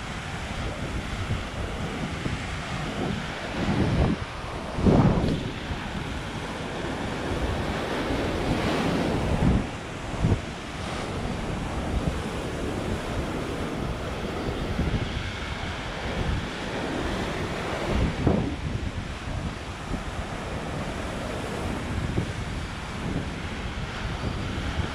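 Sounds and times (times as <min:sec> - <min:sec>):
surf breaking on rocks: 0:00.0 - 0:18.7
wind buffeting microphone: 0:00.0 - 0:24.9.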